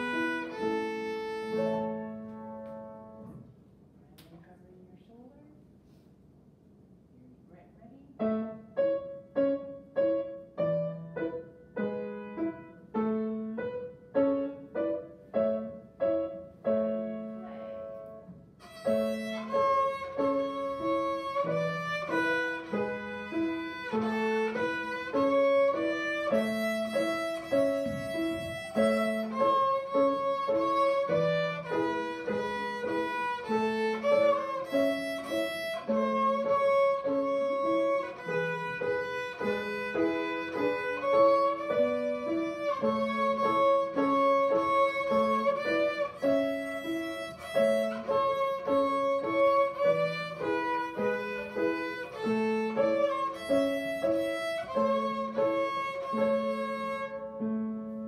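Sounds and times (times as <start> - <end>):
violin bowing sustained notes: 0.0 - 2.0, 18.6 - 57.4
grand piano: 0.0 - 4.9, 7.5 - 58.0.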